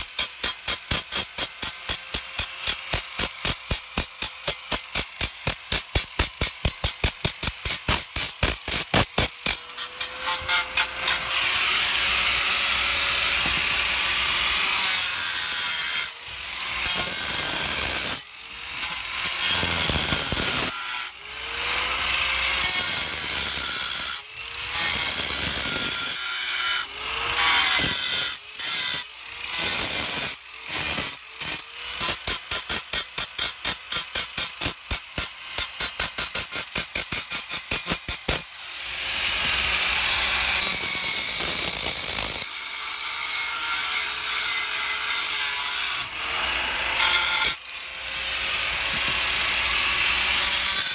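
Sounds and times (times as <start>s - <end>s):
angle grinder cutting stone: 0.0s - 50.9s.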